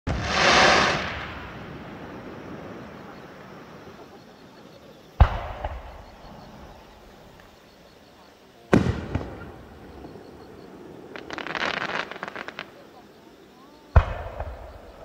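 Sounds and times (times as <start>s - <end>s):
sharp firework bang: 0.1s - 2.0s, 5.2s - 6.2s, 8.7s - 9.5s, 14.0s - 14.8s
firework crackling: 0.1s - 4.0s, 4.6s - 7.6s, 8.7s - 15.0s.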